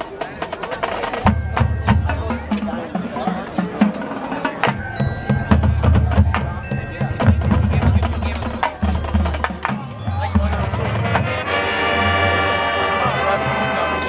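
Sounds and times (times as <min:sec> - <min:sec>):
marching band percussion: 0:00.0 - 0:14.0
brass held chord: 0:10.7 - 0:14.0.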